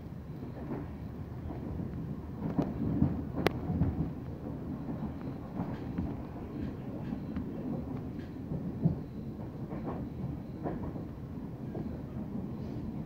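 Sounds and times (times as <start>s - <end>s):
train rumbling: 0.0s - 13.0s
wheels clicking on rails: 0.6s - 11.1s.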